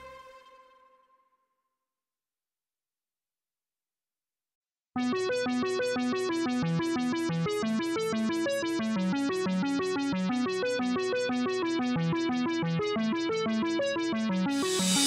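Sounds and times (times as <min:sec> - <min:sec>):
plucked keyboard melody: 0:05.0 - 0:15.0.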